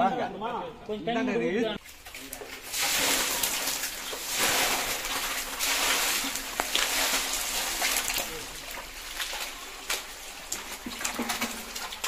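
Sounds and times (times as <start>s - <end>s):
fish thrashing in water: 1.8s - 12.0s
muddy water splashing: 1.8s - 12.0s.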